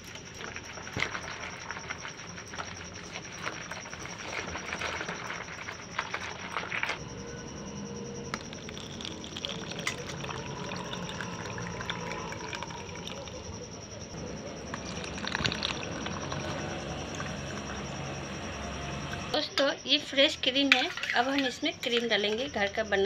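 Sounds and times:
liquid sloshing in steel bowl: 8.4 - 13.4
thick liquid pouring into cup: 8.4 - 13.4, 14.8 - 17.7.

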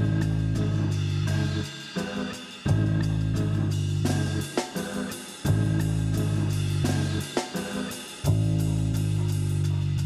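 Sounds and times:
held bass notes: 0.0 - 1.7, 2.7 - 4.6, 5.5 - 7.3, 8.3 - 10.0.

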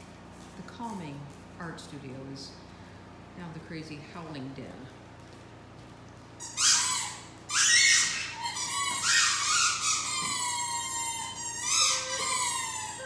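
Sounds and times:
squeaky dog toy squealing: 6.4 - 13.0
puppy howling: 6.5 - 13.0.

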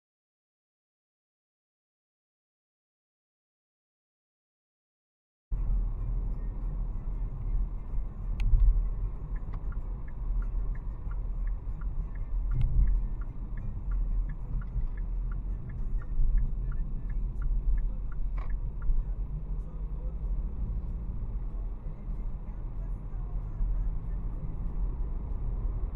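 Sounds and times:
road and engine rumble: 5.5 - 25.9
turn signal ticking: 5.6 - 25.9.

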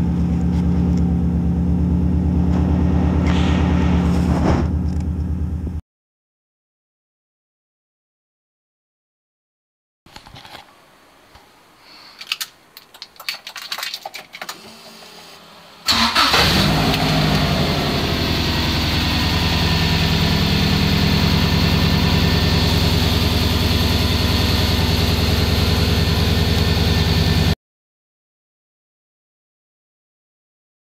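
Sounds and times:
car engine starting and idling: 0.0 - 5.8, 14.4 - 27.6
clicks and handling noise: 10.1 - 15.1.

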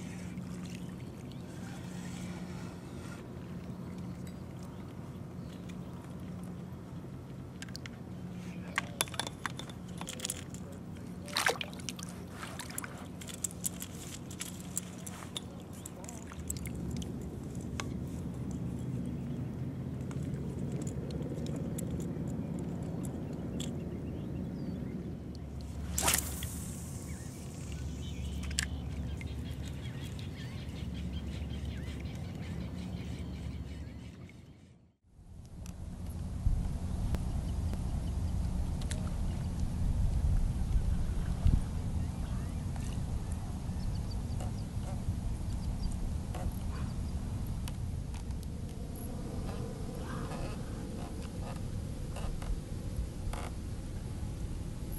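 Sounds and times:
steady low hum: 0.0 - 54.9
water sloshing and dripping: 11.2 - 18.0
low rumble on water: 35.1 - 54.9.

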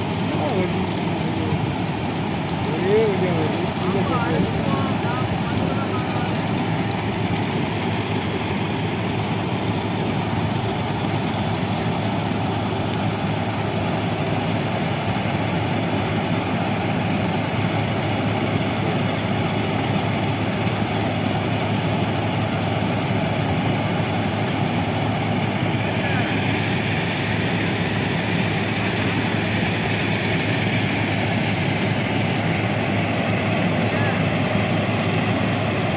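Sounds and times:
diesel engine droning: 0.0 - 35.9.

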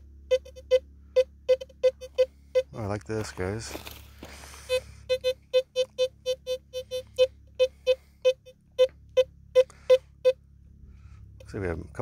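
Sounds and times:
metal detector short beeps: 0.3 - 2.9, 4.4 - 10.4.

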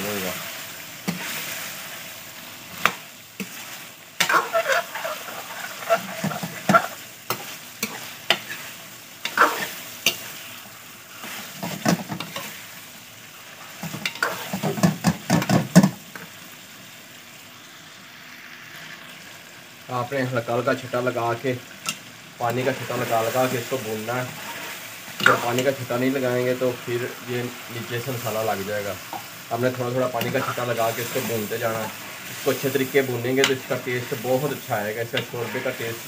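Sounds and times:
soft sizzle of frying: 0.0 - 36.0
ladle scraping metal pot: 4.2 - 8.6.

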